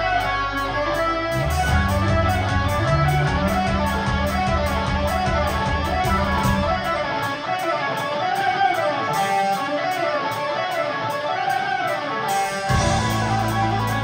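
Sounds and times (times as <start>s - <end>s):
fast electric guitar runs: 0.0s - 14.0s
live rock band playing: 0.0s - 14.0s.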